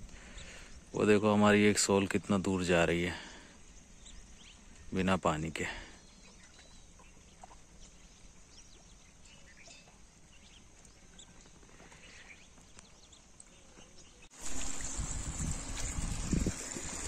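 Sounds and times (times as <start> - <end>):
bird calls: 3.1 - 14.3
running water: 14.3 - 17.0
wind on microphone: 14.4 - 17.0.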